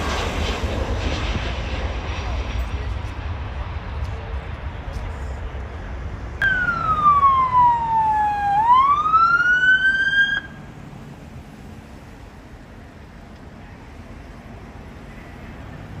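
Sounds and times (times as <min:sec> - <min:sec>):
low road rumble: 0:00.0 - 0:16.0
police siren wail: 0:06.4 - 0:10.7.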